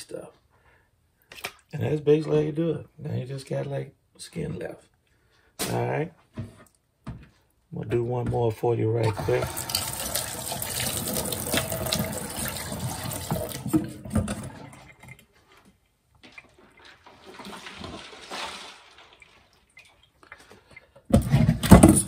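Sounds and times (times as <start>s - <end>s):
tap water running into sink: 9.1s - 15.2s
clinks and splashes: 16.2s - 20.8s.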